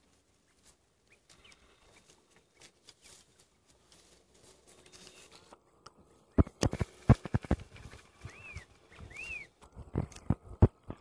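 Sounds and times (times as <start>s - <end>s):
elephants feeding on dry branches: 0.6s - 5.5s.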